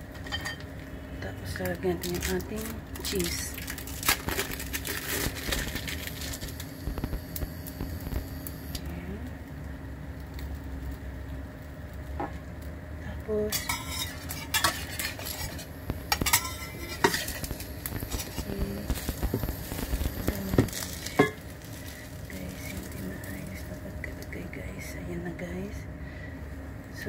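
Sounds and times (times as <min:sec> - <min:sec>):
plastic wrappers crinkling: 0:01.9 - 0:07.1, 0:13.6 - 0:23.9
omelette sizzling in oil: 0:02.9 - 0:08.8, 0:09.6 - 0:23.8
metal spatula scraping pan: 0:13.5 - 0:18.4.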